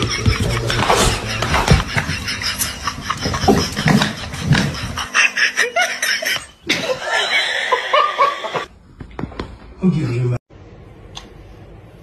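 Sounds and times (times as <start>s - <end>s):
people laughing: 0.0s - 8.7s.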